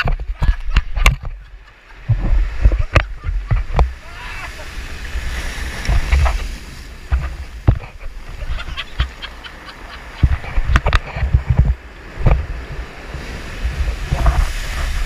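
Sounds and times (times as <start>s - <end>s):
sharp knocks and clicks: 0.0s - 1.4s, 7.1s - 8.0s, 10.2s - 12.5s
surf washing among rocks: 0.0s - 15.0s
wind rumbling on microphone: 0.0s - 15.0s.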